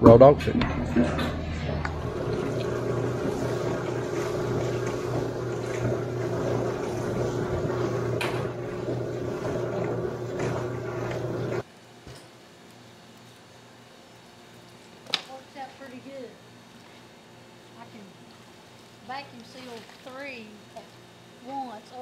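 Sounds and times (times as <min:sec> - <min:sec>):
machine humming: 0:00.0 - 0:11.9.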